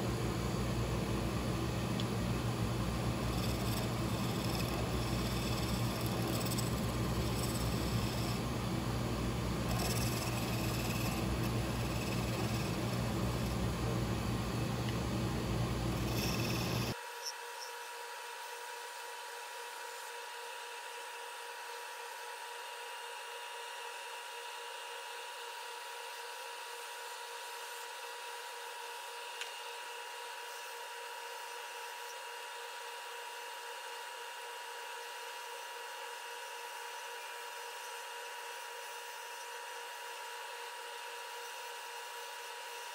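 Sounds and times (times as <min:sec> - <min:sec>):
wood lathe humming: 0:01.1 - 0:17.0
turning tool scraping wood: 0:03.1 - 0:08.6, 0:09.4 - 0:13.8, 0:15.5 - 0:17.0.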